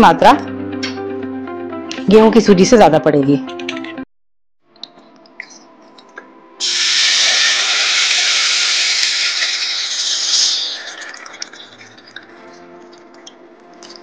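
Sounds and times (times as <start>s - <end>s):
water hissing in hot pan: 6.6s - 12.0s.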